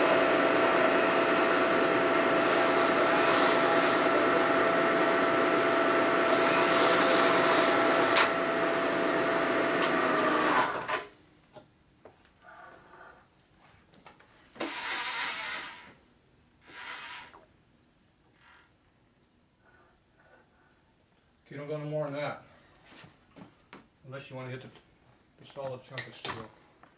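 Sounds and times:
milling machine spindle running: 0.0 - 10.9.

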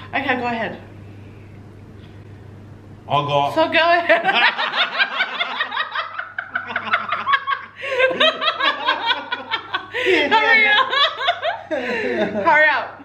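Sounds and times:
man and woman laughing: 4.1 - 12.6.

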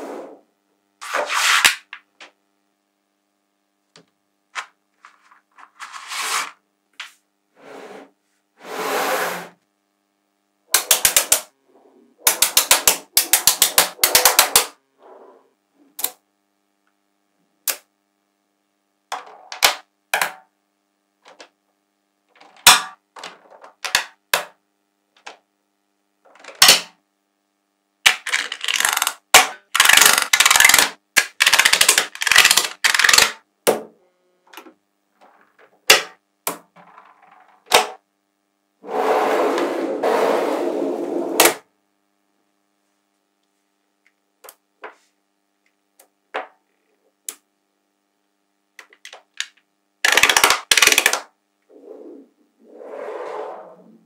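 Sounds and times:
magnetic balls clicking: 10.8 - 11.5, 12.2 - 14.8, 28.1 - 33.4.

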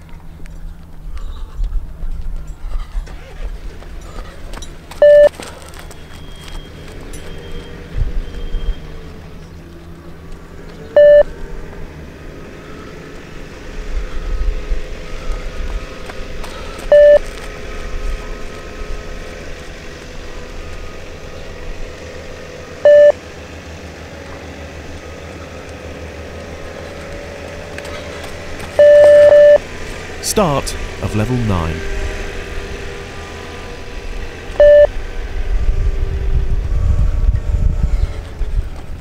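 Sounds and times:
longer electronic beep: 5.0 - 5.3, 11.0 - 11.3, 16.9 - 17.2, 22.9 - 23.2, 28.8 - 29.6, 34.6 - 34.9
short electronic beep: 5.0 - 5.3, 11.0 - 11.3, 16.9 - 17.2, 22.9 - 23.2, 28.8 - 29.6, 34.6 - 34.9
wind noise on microphone: 35.1 - 39.0.

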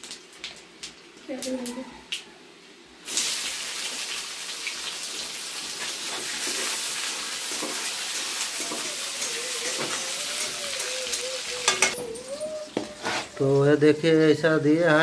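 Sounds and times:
onions sizzling in hot oil: 3.0 - 12.0.

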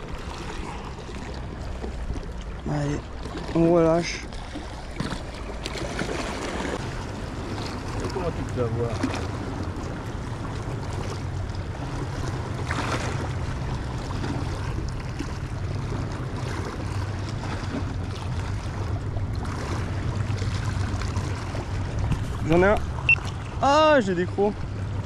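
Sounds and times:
wind rumbling on microphone: 0.0 - 23.9.

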